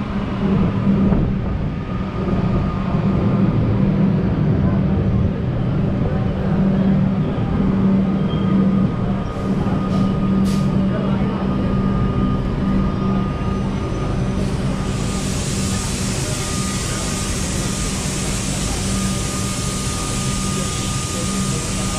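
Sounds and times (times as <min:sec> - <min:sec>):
electric train humming: 0:00.0 - 0:21.9
train air hisses: 0:09.4 - 0:10.9, 0:13.9 - 0:21.9.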